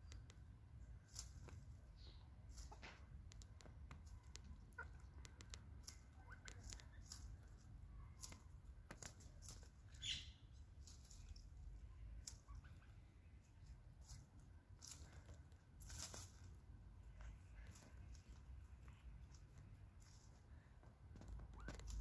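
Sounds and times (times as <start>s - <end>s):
hens pecking and scratching: 0.0s - 22.0s
hens clucking softly: 2.1s - 8.4s.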